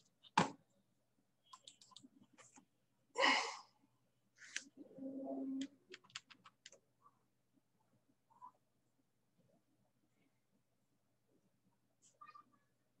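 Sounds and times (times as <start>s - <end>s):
person sighing heavily: 3.2s - 3.7s.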